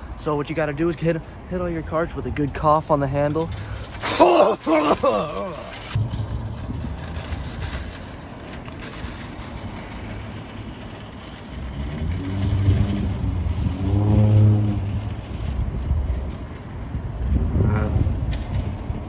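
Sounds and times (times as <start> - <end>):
shopping cart rattling on asphalt: 0.3 - 19.0
humming drone from wheels: 5.7 - 19.0.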